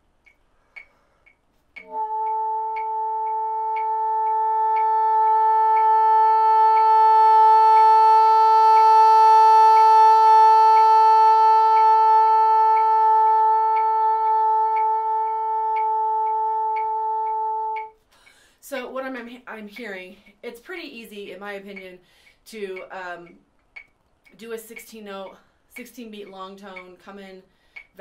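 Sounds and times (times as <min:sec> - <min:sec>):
metronome ticking: 0:00.0 - 0:28.0
bassoon long high note: 0:01.8 - 0:17.9.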